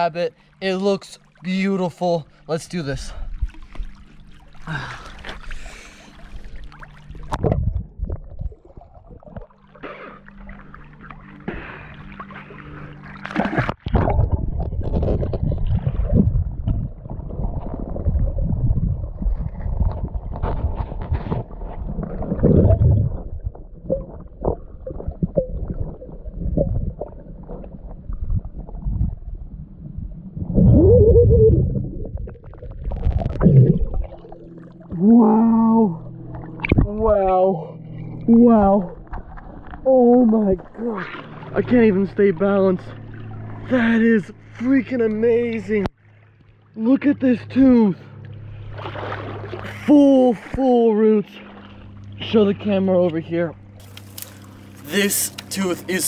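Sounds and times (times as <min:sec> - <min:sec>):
muffled underwater water gurgling: 0:00.0 - 0:45.9
low dense underwater rumble: 0:02.3 - 0:49.8
muffled pitched sound: 0:29.1 - 0:44.0.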